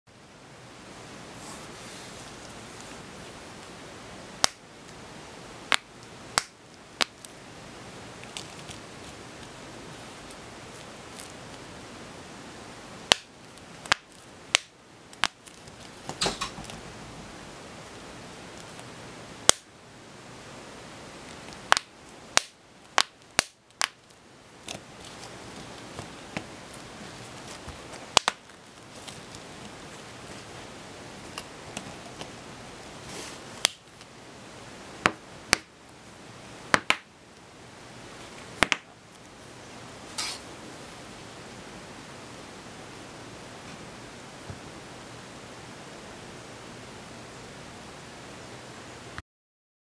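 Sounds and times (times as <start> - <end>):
steady hiss: 0.1 - 49.2.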